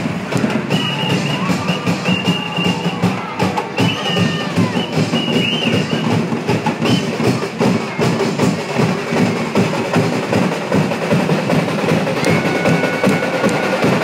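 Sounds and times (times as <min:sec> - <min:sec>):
drums playing fast beat: 0:00.0 - 0:14.0
held high note: 0:12.2 - 0:14.0.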